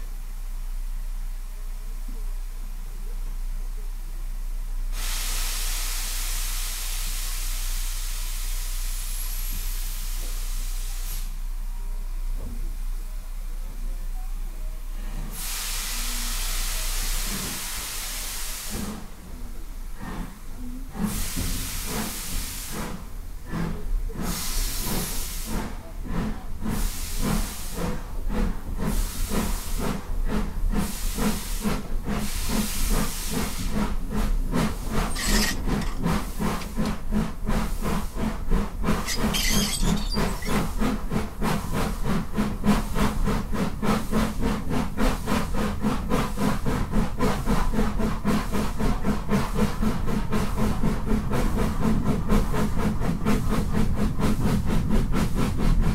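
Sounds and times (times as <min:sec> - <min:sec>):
steam locomotive exhaust chuffs: 0:04.8 - 0:11.7, 0:15.1 - 0:55.9
sharp steam hisses: 0:04.9 - 0:11.4, 0:15.3 - 0:19.1.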